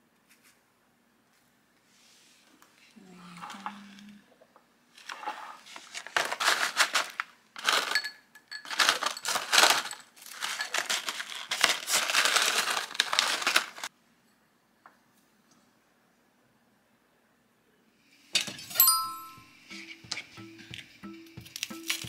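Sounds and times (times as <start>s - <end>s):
crinkling and crunching crackles: 2.7s - 13.9s.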